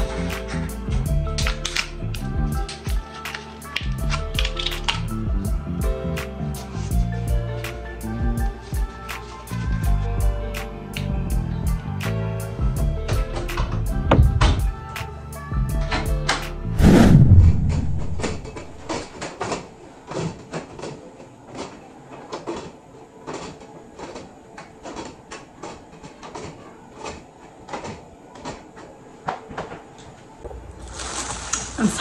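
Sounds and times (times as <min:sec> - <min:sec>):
heavy thump: 0:14.1 - 0:14.7, 0:16.8 - 0:19.1.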